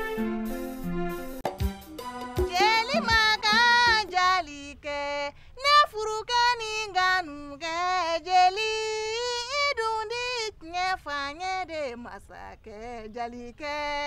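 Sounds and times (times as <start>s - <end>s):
woman singing unaccompanied: 2.4s - 14.0s
woman breathing: 5.3s - 5.6s.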